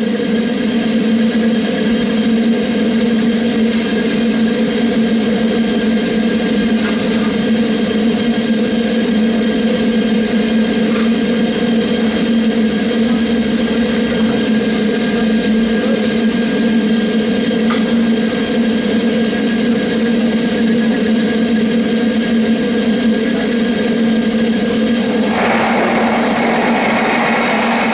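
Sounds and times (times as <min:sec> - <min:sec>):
steam hissing: 0:24.2 - 0:27.9
steady hum: 0:24.3 - 0:27.9.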